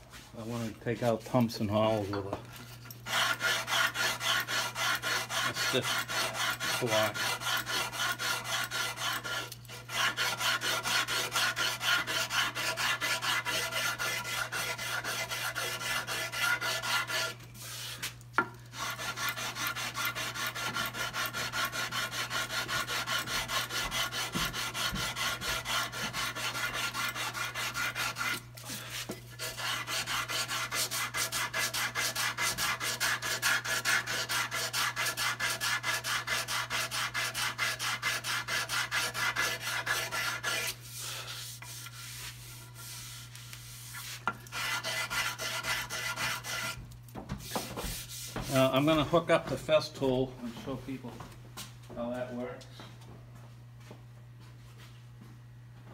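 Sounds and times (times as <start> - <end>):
sandpaper rasping on wood: 3.1 - 18.2, 18.8 - 46.8, 47.4 - 49.0.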